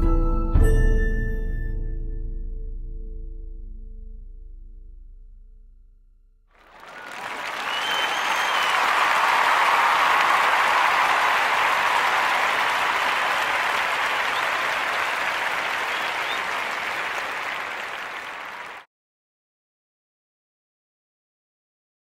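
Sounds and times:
applause: 0:06.6 - 0:18.9.

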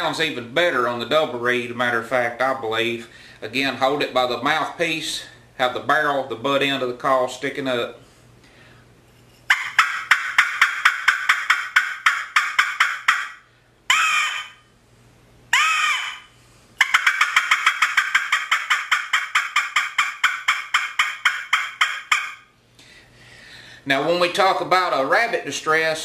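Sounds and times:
squirrel call barks: 0:09.5 - 0:14.7, 0:15.5 - 0:22.5
whining call notes: 0:09.5 - 0:14.7, 0:15.5 - 0:22.6.

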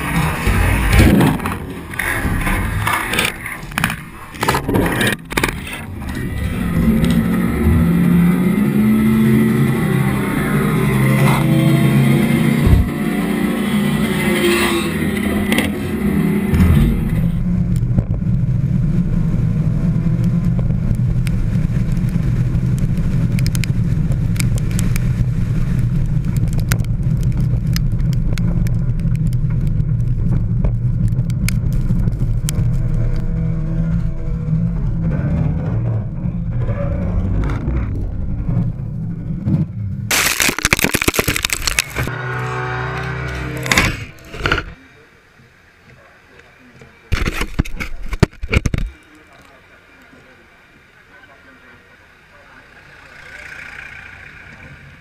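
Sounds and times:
race car engine revving: 0:00.0 - 0:30.4, 0:41.2 - 0:44.8
muffled engine drone: 0:00.0 - 0:55.0.

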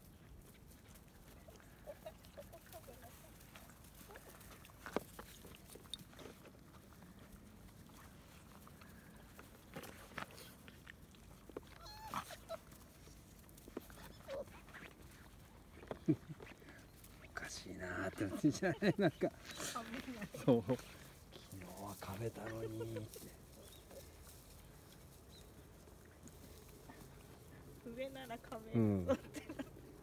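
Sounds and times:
puppy high-pitched calls: 0:11.7 - 0:12.7.

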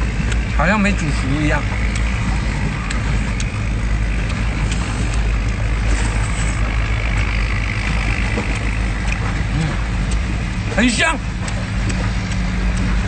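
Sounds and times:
low engine rumble: 0:00.0 - 0:13.0
faint clicks: 0:01.7 - 0:10.4, 0:11.4 - 0:13.0.

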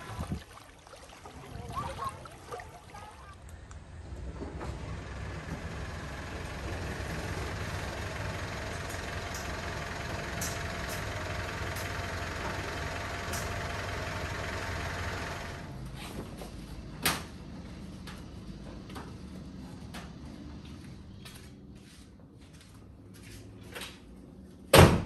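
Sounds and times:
vehicle engine rumbling: 0:03.4 - 0:22.4.

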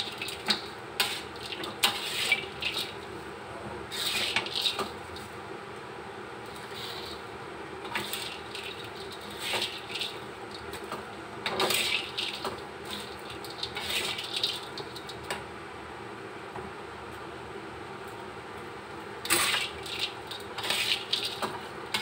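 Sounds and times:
metal spatula scraping a wok: 0:01.0 - 0:02.9, 0:03.9 - 0:04.8, 0:06.6 - 0:07.2, 0:20.6 - 0:21.4
fried potato sticks rattling: 0:08.0 - 0:10.7, 0:11.5 - 0:15.2, 0:19.3 - 0:21.5.

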